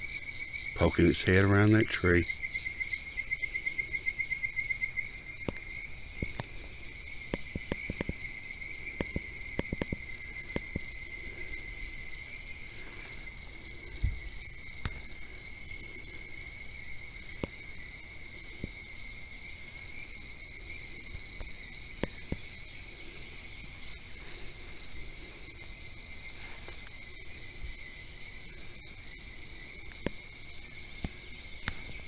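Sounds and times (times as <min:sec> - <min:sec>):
insects trilling: 0:00.0 - 0:32.0
pulsing insect call: 0:00.0 - 0:32.0
faint scattered clicks: 0:05.4 - 0:06.6, 0:07.3 - 0:08.2, 0:08.9 - 0:10.9, 0:29.8 - 0:30.2.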